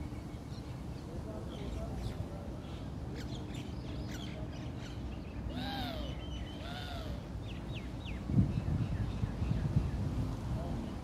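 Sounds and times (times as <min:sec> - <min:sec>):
bird drawn-out rising falling calls: 0:05.5 - 0:07.3.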